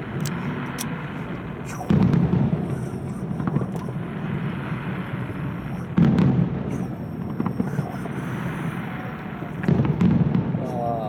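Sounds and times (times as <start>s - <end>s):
firework shells crackling: 0.0s - 10.8s
heavy firework boom: 1.9s - 8.9s, 9.6s - 10.8s.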